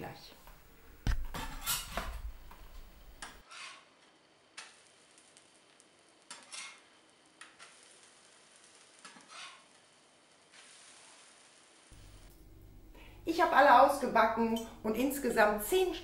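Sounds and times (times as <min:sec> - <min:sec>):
metal spatula scraping glass griddle: 0:01.3 - 0:02.3, 0:03.4 - 0:04.0, 0:06.3 - 0:09.9
pancakes sizzling: 0:04.4 - 0:13.2.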